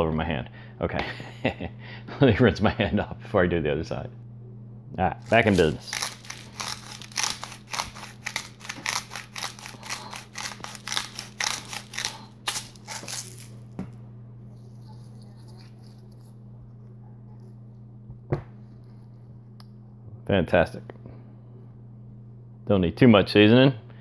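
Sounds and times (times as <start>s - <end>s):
low hum: 0.0s - 24.0s
grinder crunching seasoning: 5.2s - 13.7s.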